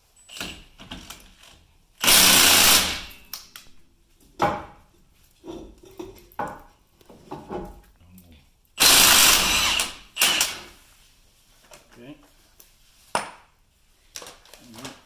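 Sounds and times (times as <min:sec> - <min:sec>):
impact wrench hammering: 0:02.0 - 0:03.3.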